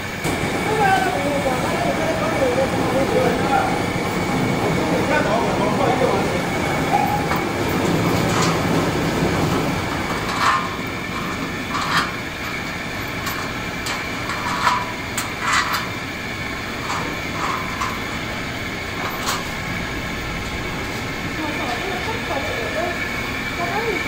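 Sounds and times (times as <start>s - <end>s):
steady background noise: 0.0s - 24.0s.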